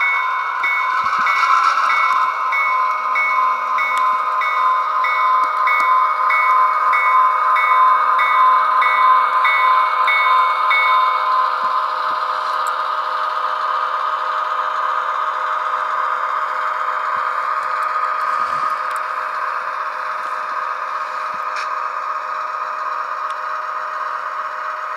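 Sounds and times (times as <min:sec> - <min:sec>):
locomotive bell ringing: 0:00.0 - 0:12.7.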